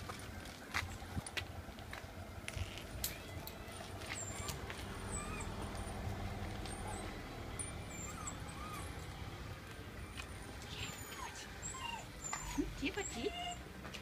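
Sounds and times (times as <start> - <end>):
vehicle engine idling: 0.0 - 13.0
faint high squeaks and chirps: 2.5 - 9.2.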